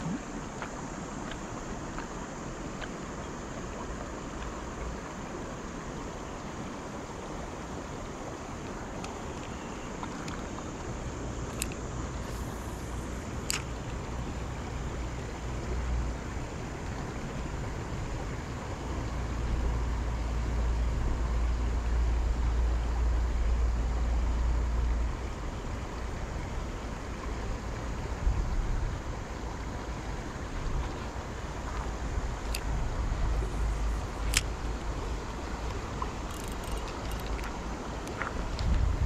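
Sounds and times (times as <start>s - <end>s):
wind buffeting microphone: 27.5s - 39.0s
sharp click: 34.2s - 34.5s.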